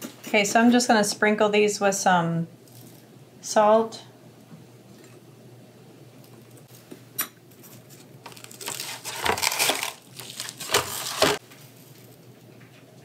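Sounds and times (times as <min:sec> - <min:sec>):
rustling and knocking in a pan: 0:10.2 - 0:12.9.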